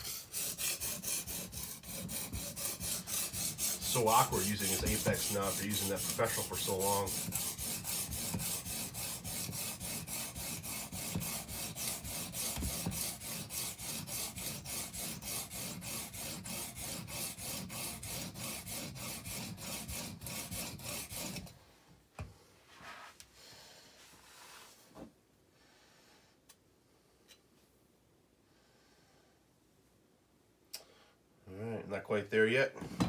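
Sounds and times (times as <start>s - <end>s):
sharpening stone grinding on knife: 0.0s - 21.4s.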